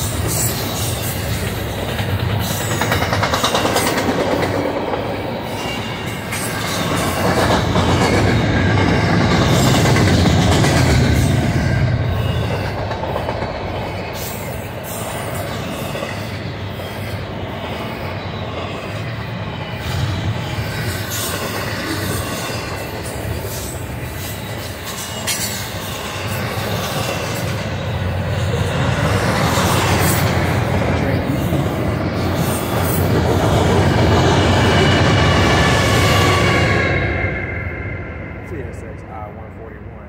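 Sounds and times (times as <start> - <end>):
wheels clacking over track: 0.0 - 5.7
train wheels rumbling on rails: 0.0 - 40.0.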